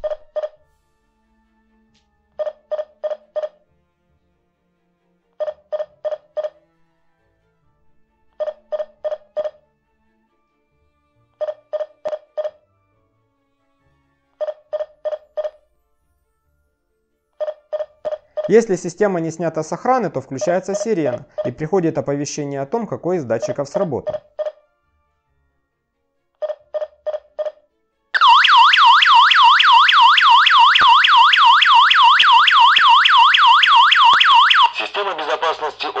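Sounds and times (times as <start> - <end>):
alarm hub beeping: 0.0 - 0.6, 2.4 - 3.6, 5.4 - 6.6, 8.4 - 9.6, 11.4 - 12.6, 14.4 - 15.6, 17.4 - 18.9, 20.4 - 21.7, 23.4 - 24.6, 28.2 - 35.0.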